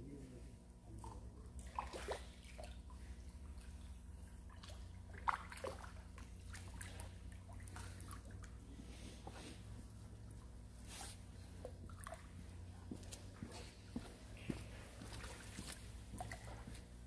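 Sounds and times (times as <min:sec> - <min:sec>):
steady low hum: 0:00.0 - 0:17.0
fish splashing in water: 0:01.6 - 0:08.6.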